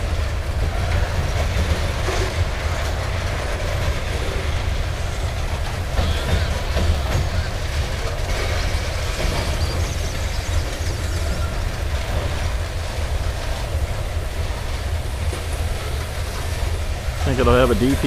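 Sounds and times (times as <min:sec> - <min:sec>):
freight train wheels rumbling on rails: 0:00.0 - 0:18.0.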